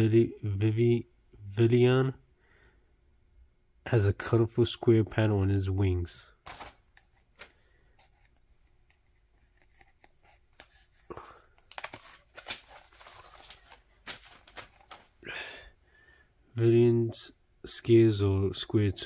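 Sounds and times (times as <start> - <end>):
fingers scraping cardboard pages: 6.5 - 11.1.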